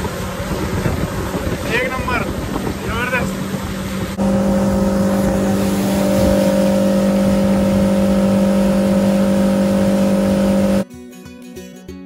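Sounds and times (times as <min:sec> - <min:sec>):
outboard motor humming: 0:00.0 - 0:10.8
wind: 0:00.0 - 0:10.9
water rushing: 0:01.7 - 0:10.8.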